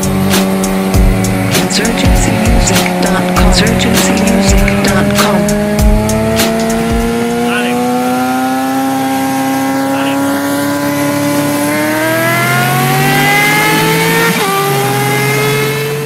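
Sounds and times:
motorcycle engine at high revs: 0:00.0 - 0:16.0.

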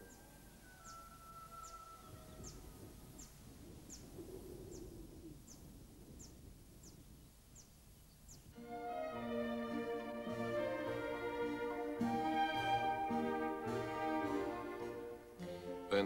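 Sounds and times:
small bird calling: 0:00.0 - 0:08.6.

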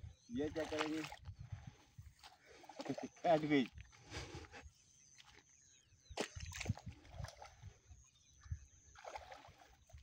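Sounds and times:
fish splashing in water: 0:08.9 - 0:10.0.

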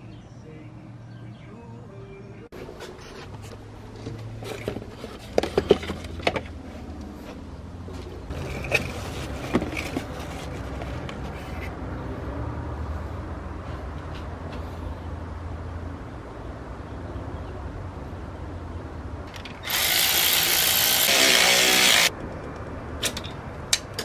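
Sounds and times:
car parts and packaging handled: 0:02.6 - 0:11.7.

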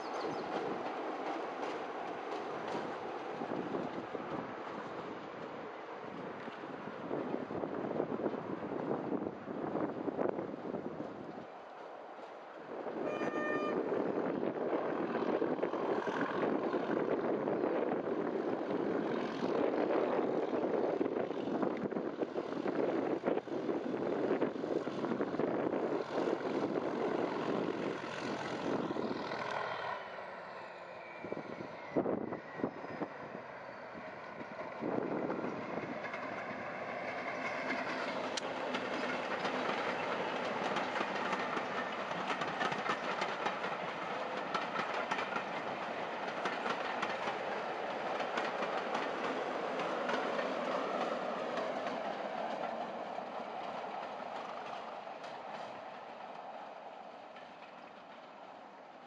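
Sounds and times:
wheels clicking over rail joints: 0:00.0 - 0:06.8, 0:34.1 - 0:59.0
diesel locomotive engine: 0:00.0 - 0:59.0.

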